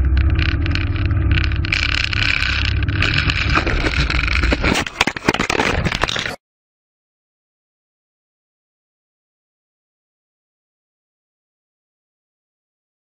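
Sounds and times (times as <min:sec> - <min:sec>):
propeller plane engine droning: 0:00.0 - 0:04.7
wind and rattling: 0:00.0 - 0:06.3.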